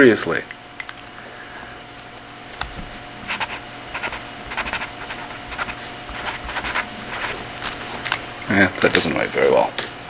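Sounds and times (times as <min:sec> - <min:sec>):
pen scratching on paper: 0:03.3 - 0:07.5.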